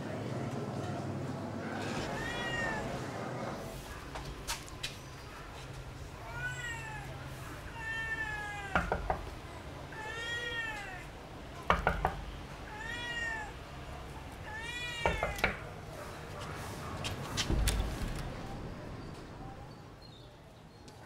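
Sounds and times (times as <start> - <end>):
cat meowing: 1.7 - 3.1, 6.0 - 9.1, 9.8 - 11.2, 12.6 - 15.7
knocks on a door: 8.7 - 9.4, 11.6 - 12.4, 15.0 - 15.6.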